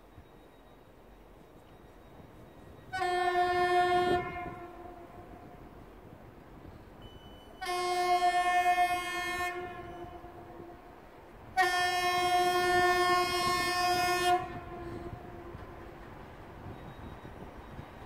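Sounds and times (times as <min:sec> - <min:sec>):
diesel locomotive horn blasts: 0:02.7 - 0:05.8, 0:07.0 - 0:17.1.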